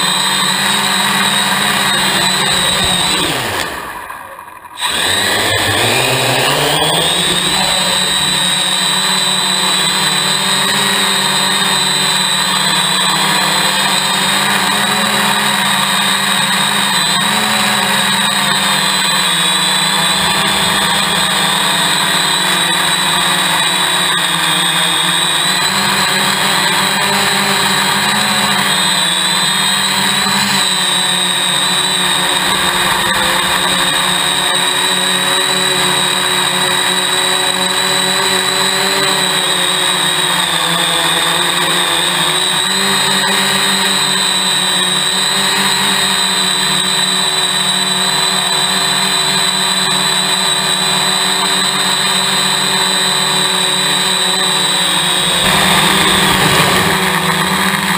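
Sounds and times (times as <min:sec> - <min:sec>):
drone motors whining: 0:00.0 - 0:57.9.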